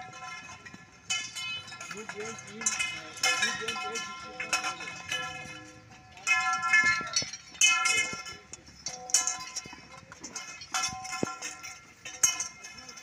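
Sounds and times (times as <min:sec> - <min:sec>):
metal tent poles clanging: 0:00.0 - 0:13.0
sharp metal clinks: 0:00.0 - 0:13.0.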